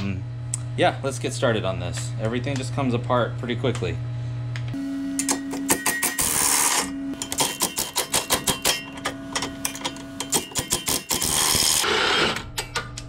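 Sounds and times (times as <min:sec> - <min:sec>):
impact wrench bursts: 0:10.4 - 0:12.4.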